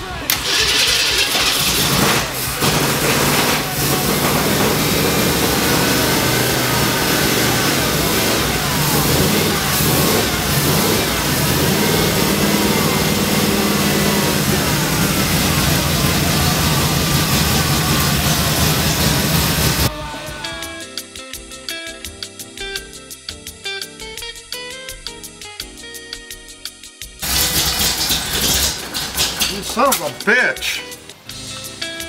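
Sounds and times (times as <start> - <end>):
engine revving: 0.3 - 19.9, 27.2 - 30.0.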